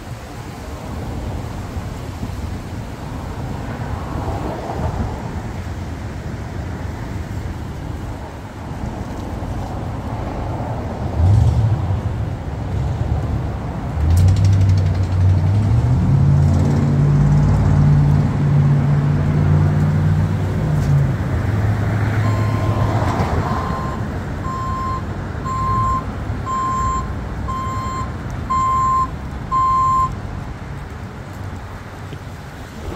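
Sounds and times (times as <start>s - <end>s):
backup alarm beeping: 22.2s - 30.1s.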